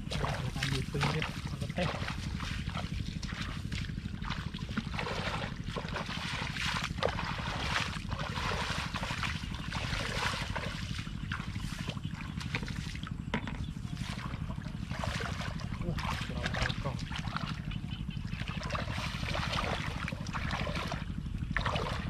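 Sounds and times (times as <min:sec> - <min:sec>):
steady low rumble: 0:00.0 - 0:22.0
water splashing and sloshing: 0:00.0 - 0:22.0.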